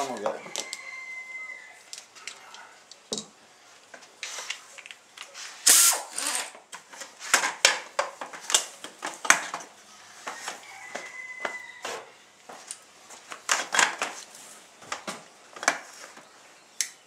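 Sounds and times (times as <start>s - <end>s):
pneumatic tool air hiss: 5.6s - 6.5s.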